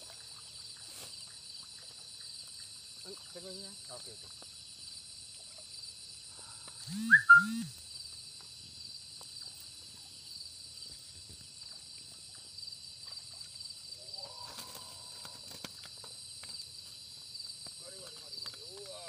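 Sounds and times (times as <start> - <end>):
insect chorus trilling: 0.0 - 19.0
low swooping calls: 6.9 - 7.7.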